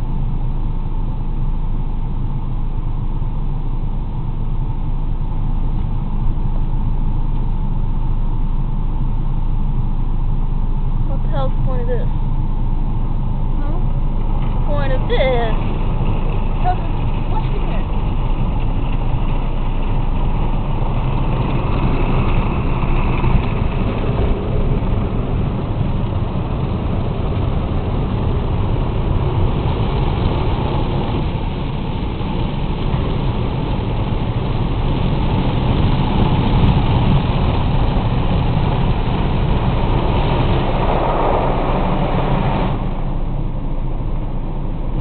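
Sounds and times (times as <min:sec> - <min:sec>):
car wash spray on bodywork: 0:14.6 - 0:45.0.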